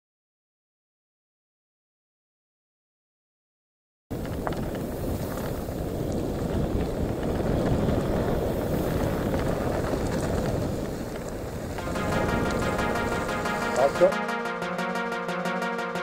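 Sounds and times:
wind buffeting microphone: 0:04.1 - 0:11.8.

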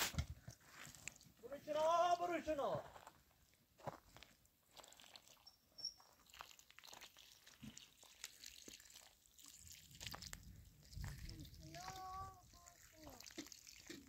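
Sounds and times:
faint clicks and scrapes: 0:00.1 - 0:01.4.

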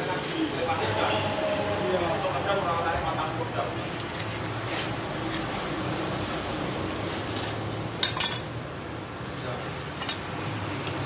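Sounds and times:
knife clattering on tiled floor: 0:08.0 - 0:08.5.

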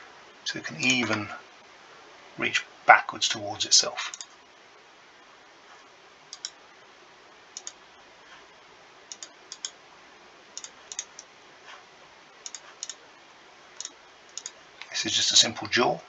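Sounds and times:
computer mouse buttons clicking: 0:06.3 - 0:06.6, 0:07.6 - 0:07.8, 0:09.1 - 0:09.8, 0:10.6 - 0:11.3, 0:12.4 - 0:13.0, 0:13.8 - 0:14.6.

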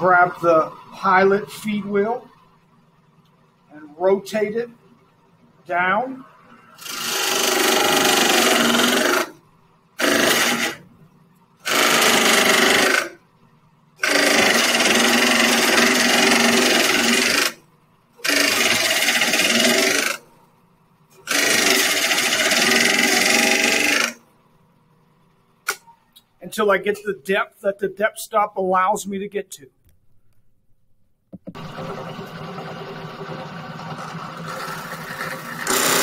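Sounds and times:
drill press boring through wood: 0:06.8 - 0:09.4, 0:10.0 - 0:10.8, 0:11.6 - 0:13.2, 0:14.0 - 0:17.6, 0:18.2 - 0:20.2, 0:21.2 - 0:24.2, 0:31.6 - 0:36.0.

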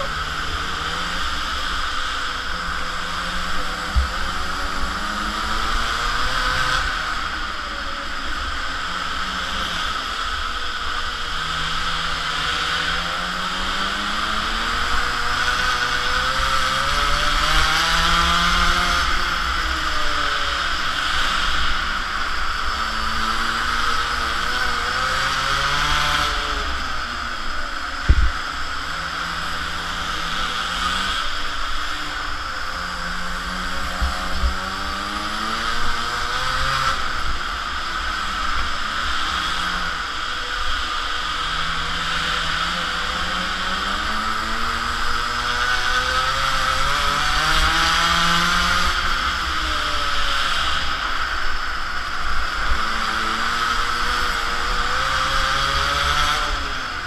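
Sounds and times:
small two-stroke engine revving: 0:00.0 - 0:57.0
steady rush of noise: 0:00.0 - 0:57.0
wind rumble on microphone: 0:28.0 - 0:28.6.

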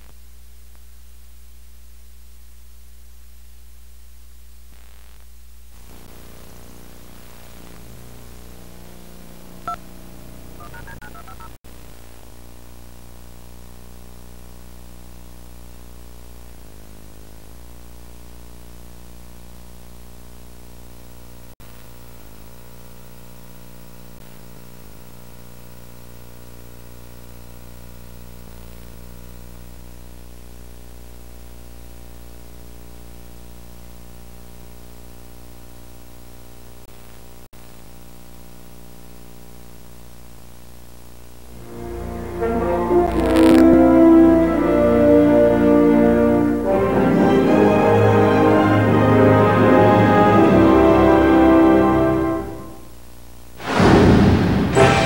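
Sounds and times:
tape hiss: 0:00.0 - 0:53.8
electrical hum: 0:05.8 - 0:13.0, 0:41.0 - 0:46.6.

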